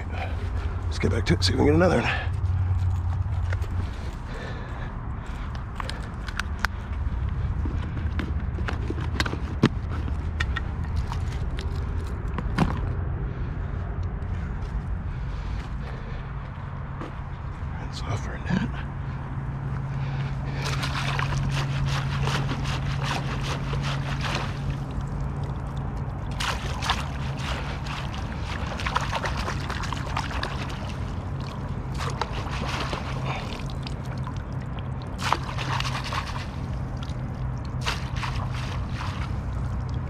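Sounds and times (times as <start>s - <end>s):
low hum: 0.0s - 40.0s
net sloshing in water: 20.6s - 40.0s.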